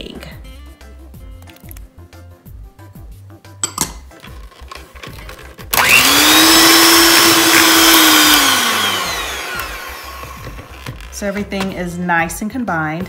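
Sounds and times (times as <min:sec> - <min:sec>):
electric hand mixer whirring: 0:05.6 - 0:11.2.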